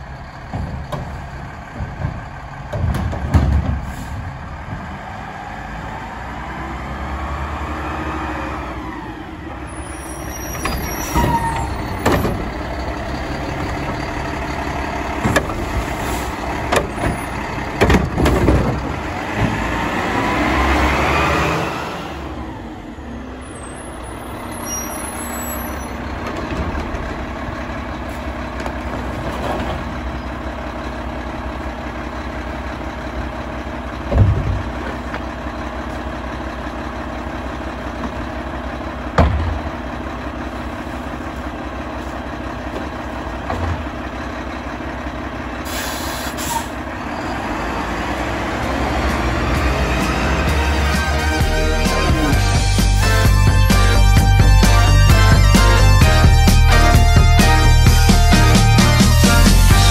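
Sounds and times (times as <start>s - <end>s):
garbage truck engine running: 0.0s - 59.9s
loud bang of refuse loading: 0.2s - 4.9s, 10.4s - 12.8s, 15.1s - 19.8s, 34.0s - 35.1s, 39.0s - 40.8s, 54.0s - 59.9s
clunks and knocks from truck body: 0.4s - 4.8s, 15.2s - 15.6s, 16.6s - 19.6s, 34.0s - 35.3s, 39.1s - 39.9s, 42.6s - 44.0s
air brake hiss: 45.6s - 46.8s.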